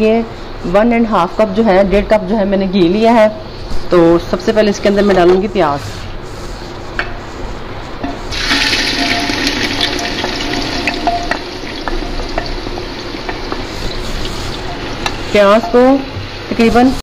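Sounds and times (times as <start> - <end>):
onions sizzling in hot fat: 8.3 - 17.0.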